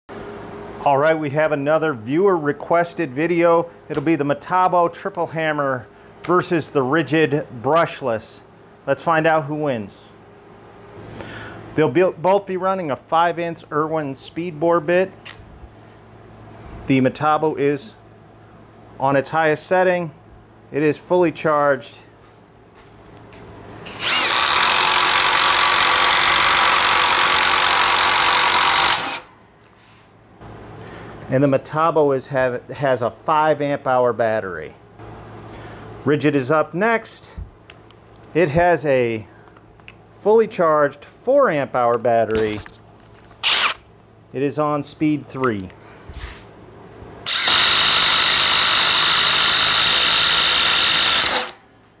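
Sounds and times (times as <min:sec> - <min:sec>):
impact driver drilling into wood: 0:23.9 - 0:29.3, 0:43.4 - 0:43.8, 0:47.2 - 0:51.6.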